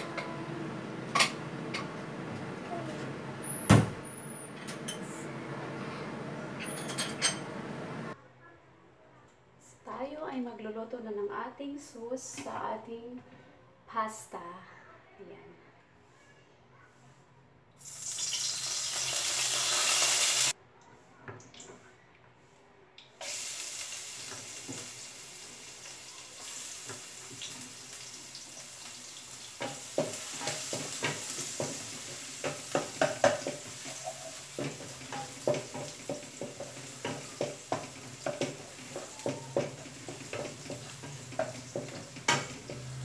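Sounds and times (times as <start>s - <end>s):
garlic sizzling in oil: 17.8s - 20.6s, 23.2s - 43.0s
oil hissing in hot pan: 17.8s - 20.6s, 23.2s - 43.0s
spatula scraping pan: 29.6s - 43.0s.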